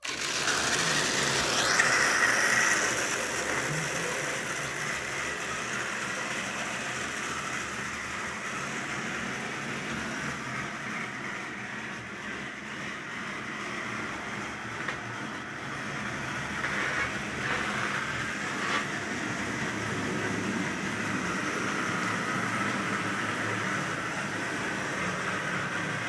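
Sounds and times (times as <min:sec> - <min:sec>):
model train whirring on rails: 0:00.0 - 0:26.0.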